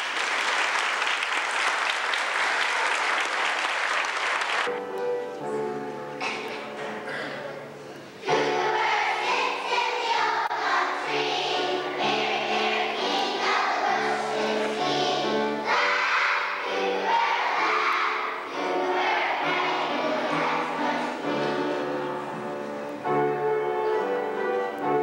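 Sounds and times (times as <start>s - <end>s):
young children singing in unison: 8.2s - 22.9s.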